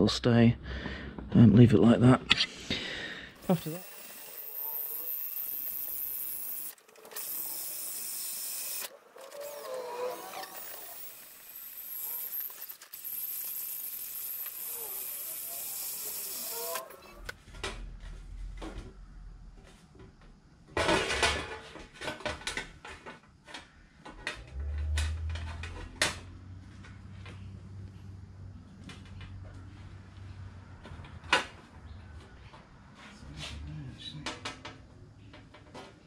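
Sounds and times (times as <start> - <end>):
cordless drill running: 3.4 - 17.1
metal plate knocks and clatters: 20.8 - 23.0.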